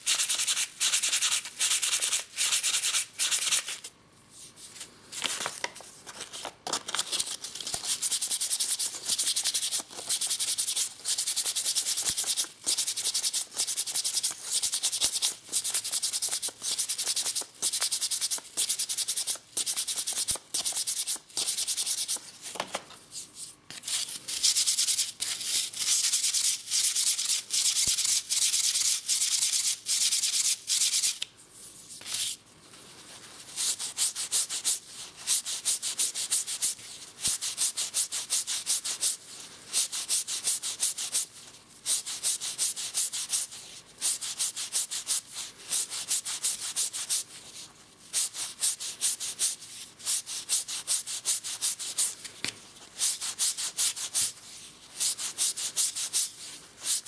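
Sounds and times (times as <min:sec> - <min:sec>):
sandpaper rubbing on wood: 0:00.0 - 0:03.8.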